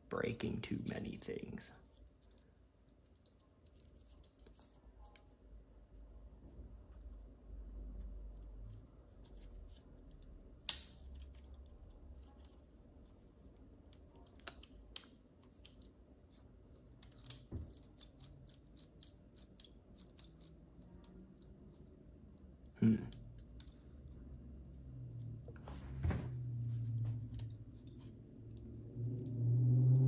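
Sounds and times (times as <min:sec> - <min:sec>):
small plastic parts clicking: 0:09.2 - 0:22.0, 0:22.6 - 0:24.2.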